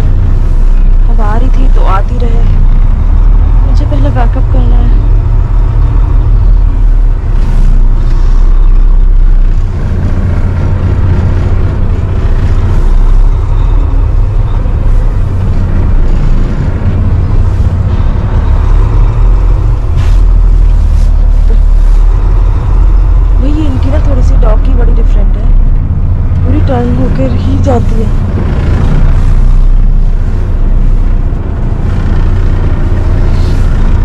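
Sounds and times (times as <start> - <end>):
truck engine and road noise: 0.0 - 34.0.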